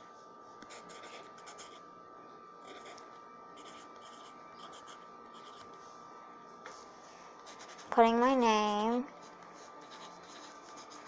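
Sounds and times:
pencil scratching on paper: 0.7 - 1.8, 3.6 - 5.8, 7.4 - 11.0.

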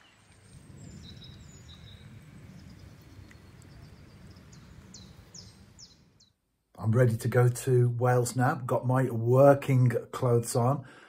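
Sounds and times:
short falling bird calls: 0.0 - 6.4
small birds chirping: 0.0 - 6.4
low rough rumble: 0.2 - 6.2.

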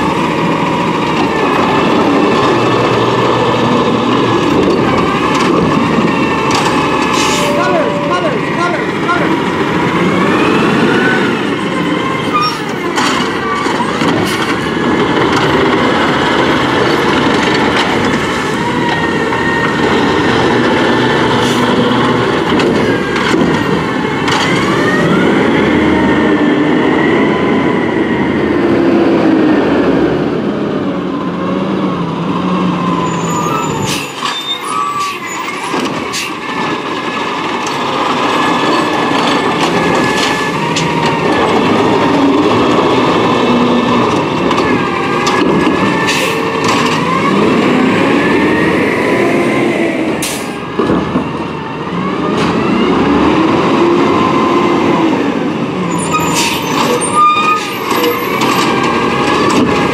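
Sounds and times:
garbage truck engine: 0.0 - 59.9
gliding squeals and whines: 0.4 - 21.9, 32.8 - 36.4, 55.9 - 59.6.

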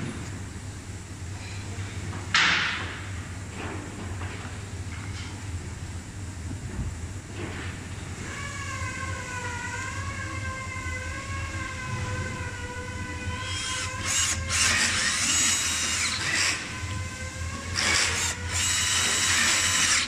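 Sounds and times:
cordless drill driving a screw: 13.4 - 16.6, 17.7 - 20.0.

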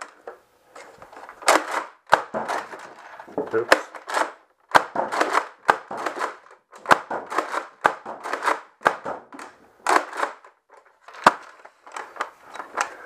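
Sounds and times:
toy blaster being pumped: 4.0 - 9.0.

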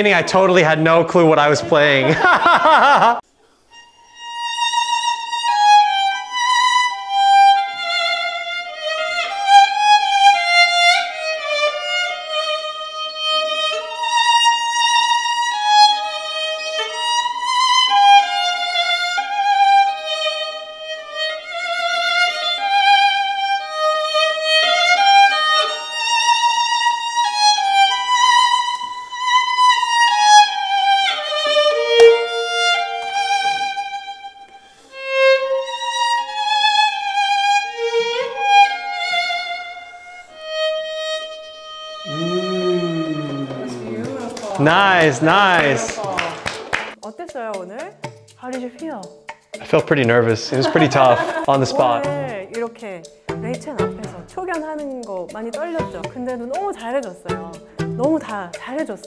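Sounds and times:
solo violin melody: 3.7 - 45.7.

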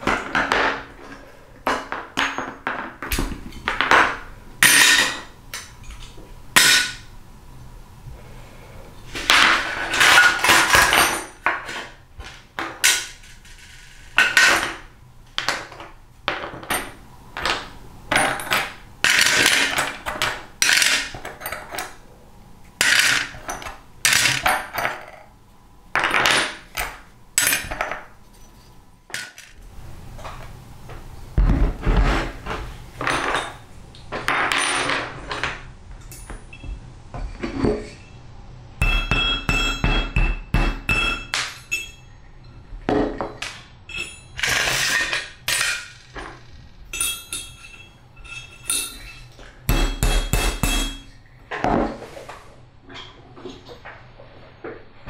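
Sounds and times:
parts clinking into metal tray: 3.6 - 7.0, 38.8 - 42.1, 43.3 - 46.4, 47.0 - 51.2
metallic clinks and scrapes: 43.9 - 49.4.

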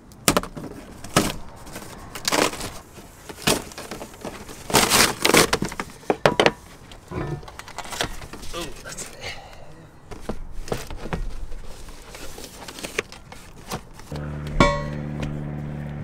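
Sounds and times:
cardboard box tearing: 0.9 - 5.8.

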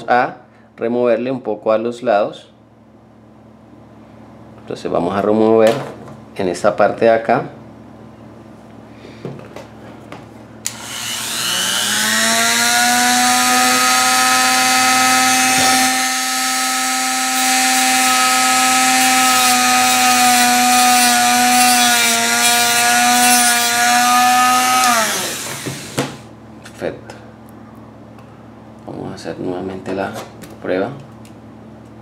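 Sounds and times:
rotary tool whining while grinding plastic: 10.7 - 26.0.

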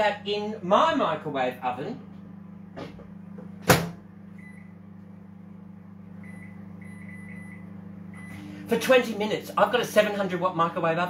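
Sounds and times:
microwave door shutting: 2.7 - 4.0.

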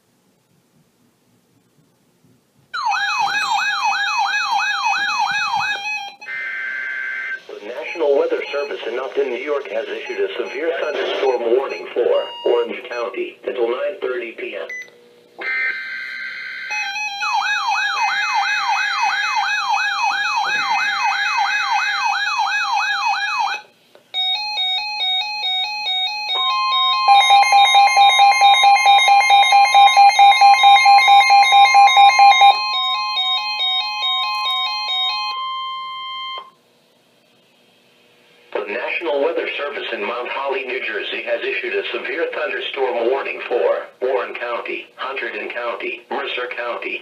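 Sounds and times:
rising siren-like alarm: 2.8 - 8.8, 15.4 - 36.6
beeping alarms: 2.8 - 13.4, 14.6 - 36.6
steady high tone: 2.8 - 13.4, 15.4 - 36.6.

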